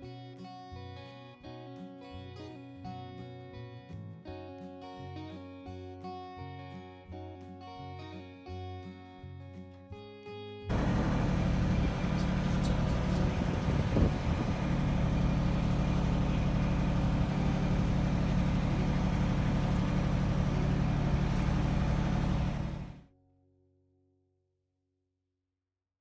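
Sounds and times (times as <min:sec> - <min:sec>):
engine running steadily: 0:10.7 - 0:23.0.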